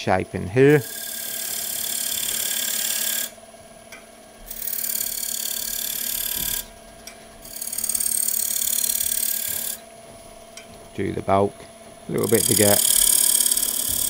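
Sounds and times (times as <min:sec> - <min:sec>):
lathe humming: 0:00.0 - 0:14.0
chisel rasping on spinning wood: 0:00.7 - 0:03.4, 0:04.5 - 0:06.7, 0:07.4 - 0:09.8, 0:12.1 - 0:14.0.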